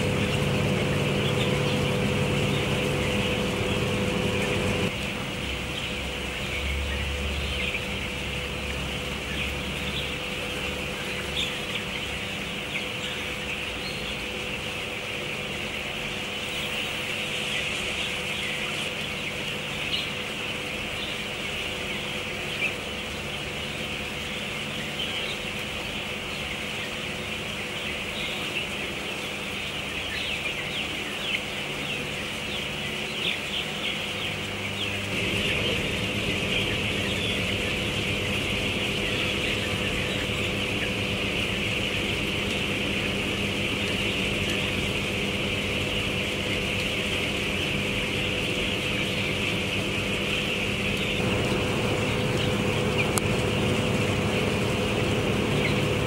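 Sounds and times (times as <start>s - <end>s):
chickens peeping and cheeping: 0.0s - 56.0s
ventilation fans humming: 0.0s - 56.0s.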